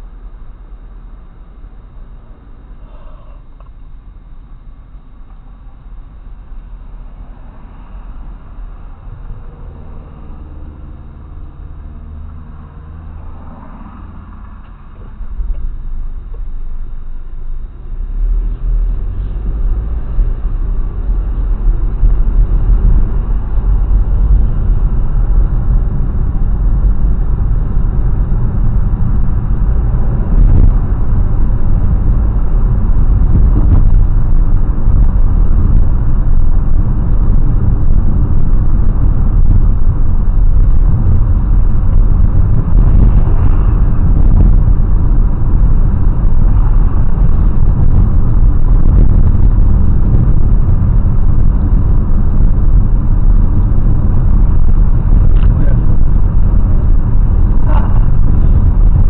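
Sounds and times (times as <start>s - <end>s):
car road and engine rumble: 0.0s - 59.0s.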